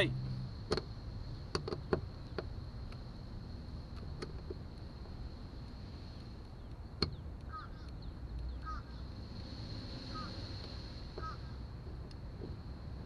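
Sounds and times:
bird chirping: 6.5 - 9.1
high insect buzz: 8.6 - 11.7.

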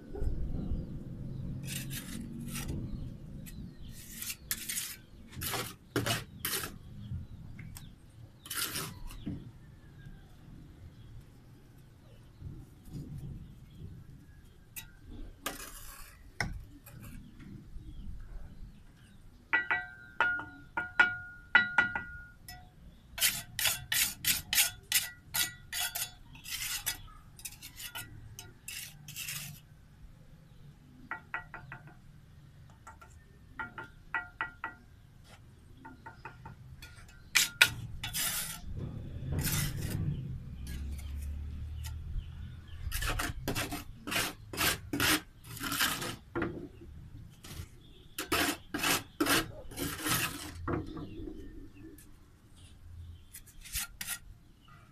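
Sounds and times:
trowel tapping and scraping bricks: 1.7 - 9.5, 14.8 - 17.4, 19.5 - 29.7, 31.0 - 32.0, 32.7 - 42.0, 42.8 - 46.8, 47.4 - 51.2, 53.3 - 54.3.

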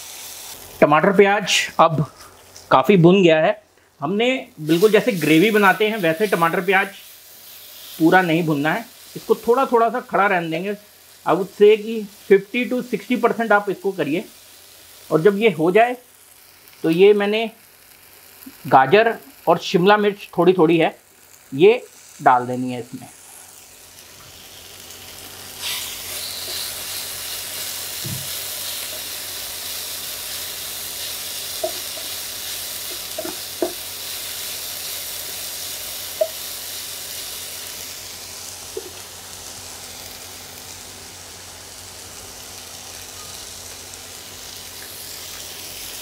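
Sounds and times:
vegetables sizzling in oil: 0.0 - 46.0
spatula tapping pan: 31.6 - 32.1, 32.9 - 33.9, 36.2 - 36.4.

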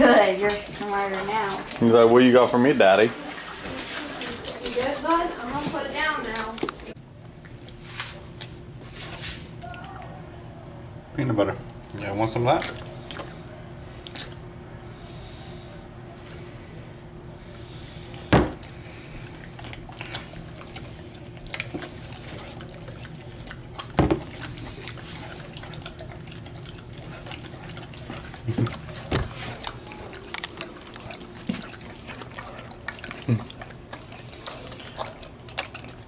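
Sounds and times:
dogs licking and smacking: 0.0 - 7.8, 11.8 - 14.5, 18.1 - 36.0.

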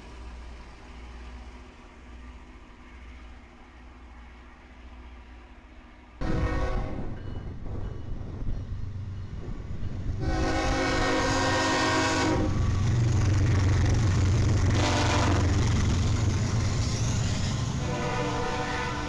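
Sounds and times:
locomotive engines rumbling: 0.0 - 19.0
train air horn: 6.2 - 7.1, 10.2 - 12.6, 14.7 - 15.6, 17.8 - 19.0.

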